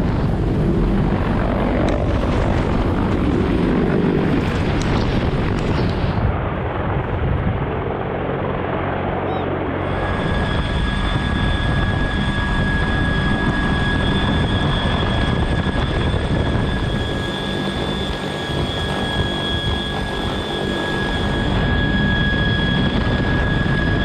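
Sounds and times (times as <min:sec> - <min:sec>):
helicopter rotor and turbine noise: 0:00.0 - 0:24.0
high steady whining tones: 0:09.8 - 0:24.0.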